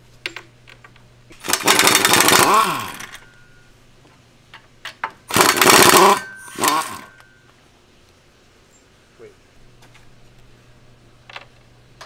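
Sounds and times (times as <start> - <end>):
pneumatic wrench running: 1.4 - 3.2, 5.3 - 7.2.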